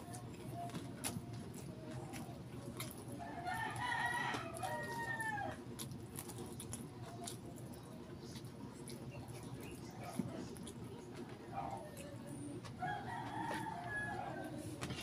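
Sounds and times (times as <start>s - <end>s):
rooster crowing: 3.2s - 5.6s, 12.8s - 14.6s.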